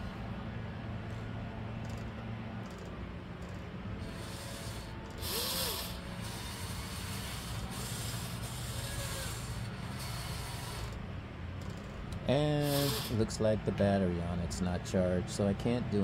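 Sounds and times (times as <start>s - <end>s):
electric gear motors whirring: 1.8s - 13.4s.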